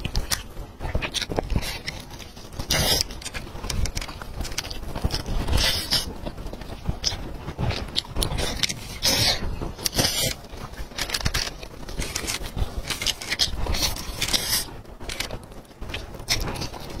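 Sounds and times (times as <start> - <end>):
chewing and tearing meat: 0.0 - 17.0.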